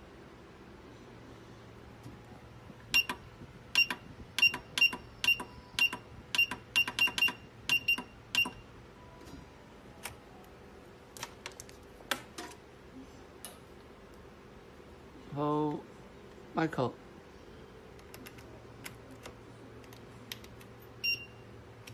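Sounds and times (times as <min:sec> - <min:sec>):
machine click-beeps: 0:02.9 - 0:08.7, 0:21.0 - 0:21.9.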